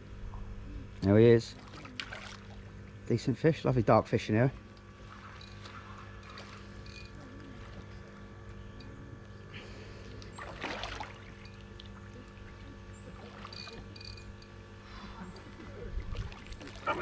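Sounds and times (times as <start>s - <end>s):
steady low hum: 0.0s - 17.0s
water splashing: 1.5s - 2.7s, 4.6s - 6.8s, 10.2s - 14.0s, 15.2s - 17.0s.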